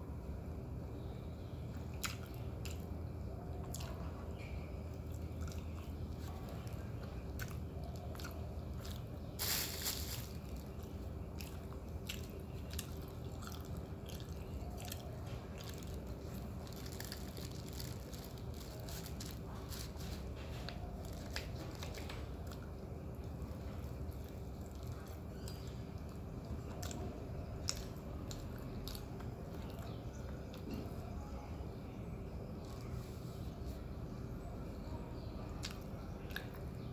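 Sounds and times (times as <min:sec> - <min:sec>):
faint steady hum: 0:00.0 - 0:36.9
chewing and mouth smacks: 0:01.9 - 0:02.9, 0:03.6 - 0:09.6, 0:10.6 - 0:18.8, 0:24.1 - 0:30.8, 0:35.6 - 0:36.8.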